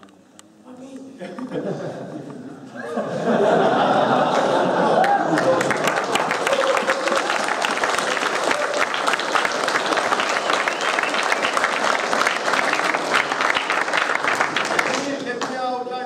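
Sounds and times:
audience applauding: 4.3s - 15.6s.

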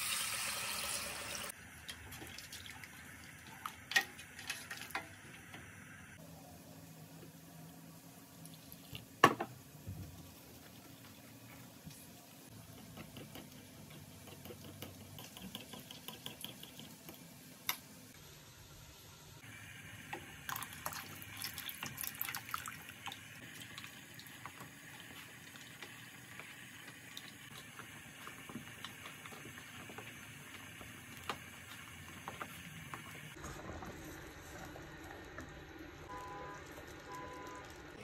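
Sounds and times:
liquid pouring and sloshing: 1.8s - 5.0s, 20.5s - 30.6s.

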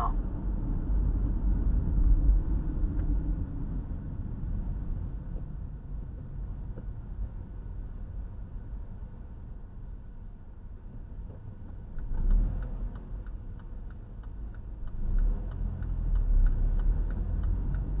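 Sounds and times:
car engine and tyre rumble: 0.0s - 18.0s
turn signal clicking: 10.8s - 18.0s.

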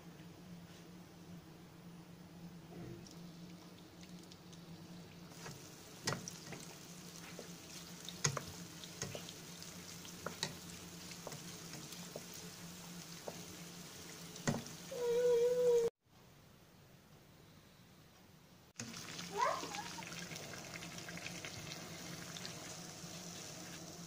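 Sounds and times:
oil sizzling in a pan: 3.1s - 15.9s, 18.8s - 24.0s.

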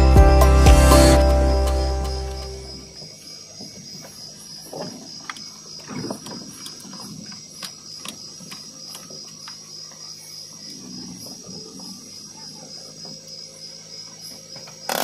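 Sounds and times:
high-pitched whine: 0.0s - 3.0s.

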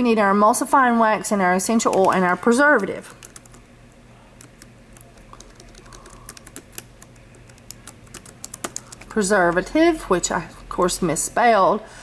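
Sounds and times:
keyboard typing clicks: 1.8s - 3.6s, 4.4s - 9.7s.

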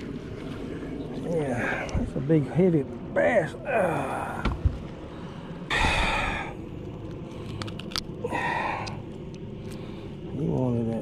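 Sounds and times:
man exhaling heavily: 5.7s - 6.6s, 8.2s - 9.0s.

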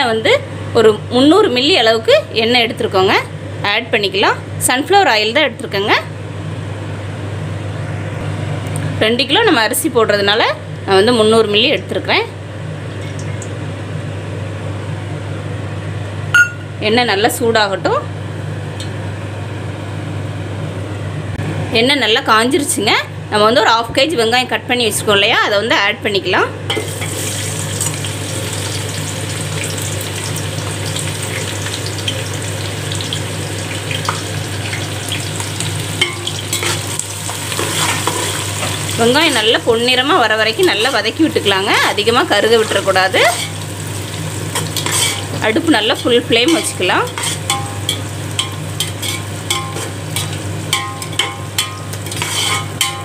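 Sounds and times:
onions sizzling in oil: 26.7s - 53.0s
metal spoon clinking on pot: 46.5s - 53.0s.

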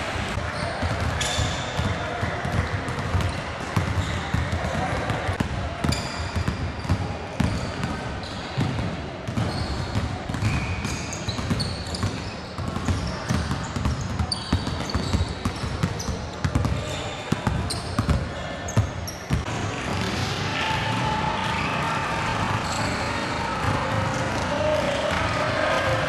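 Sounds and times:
sneakers squeaking on court: 0.5s - 20.2s, 22.6s - 23.2s
basketballs bouncing on wooden floor: 0.8s - 8.0s, 8.6s - 18.2s.

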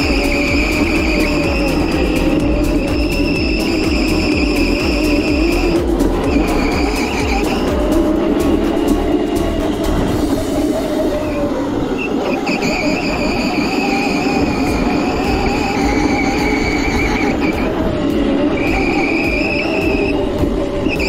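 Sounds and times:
electric motor whine: 0.0s - 21.0s
small wheels rumbling on concrete: 0.0s - 21.0s.

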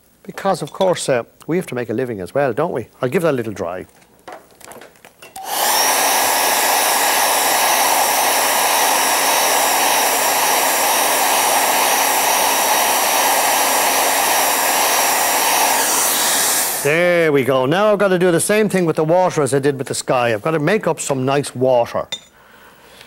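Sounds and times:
hair dryer running: 5.4s - 17.0s.

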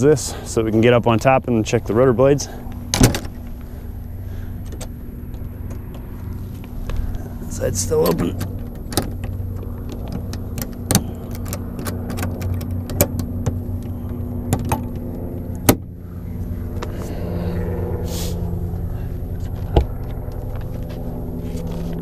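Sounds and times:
steady mechanical hum: 0.0s - 22.0s
panel latches clicking and knocking: 8.1s - 15.0s.

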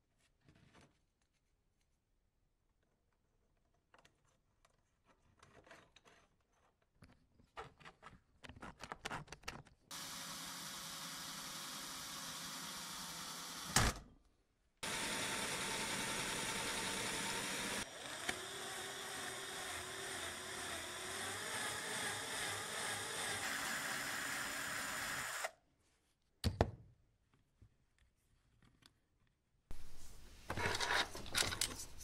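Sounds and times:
electric drill boring into metal: 9.9s - 13.9s, 14.8s - 25.5s
power tool running: 9.9s - 14.0s, 14.8s - 25.5s.

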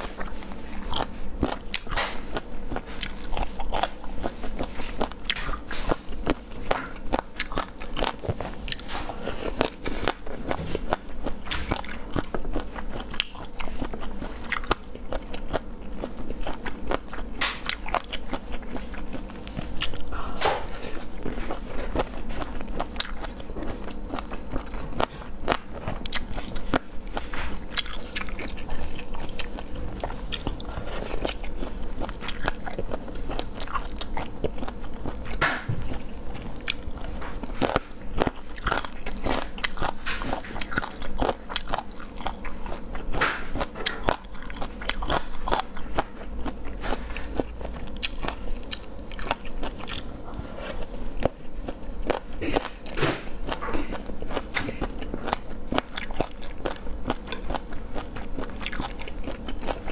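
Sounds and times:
chewing and crunching food: 0.0s - 59.9s.

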